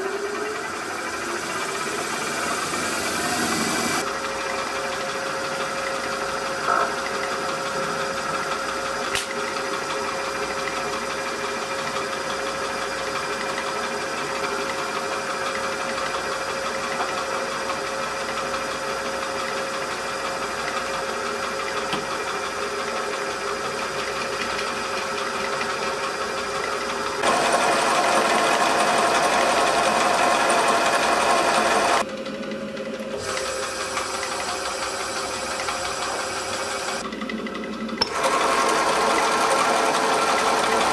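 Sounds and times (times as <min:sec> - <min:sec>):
lathe motor whirring: 0:00.0 - 0:40.9.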